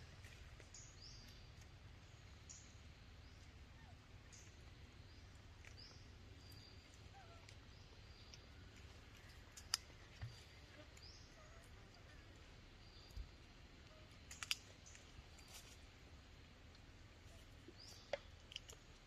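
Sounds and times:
faint bird chirps: 0:00.7 - 0:15.8.

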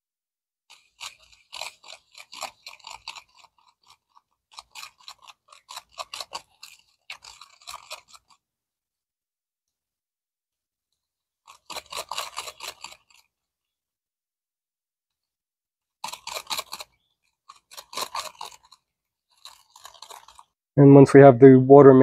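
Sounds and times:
chopstick scraping soil in cup: 0:00.7 - 0:08.4, 0:11.4 - 0:13.4, 0:16.0 - 0:20.6.

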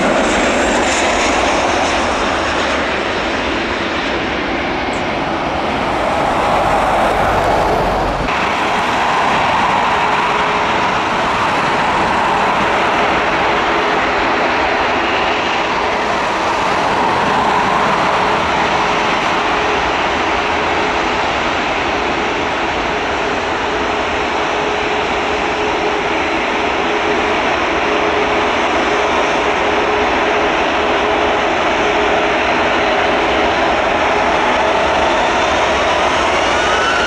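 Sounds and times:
jet engines running: 0:00.0 - 0:37.0
low rumble: 0:04.6 - 0:08.4.

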